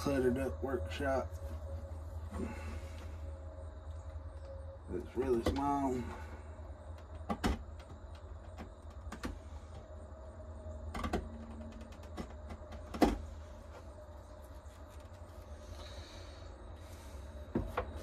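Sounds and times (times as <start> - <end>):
steady low hum: 0.0 - 18.0
sharp knocks and clicks: 6.9 - 9.4, 10.9 - 13.2.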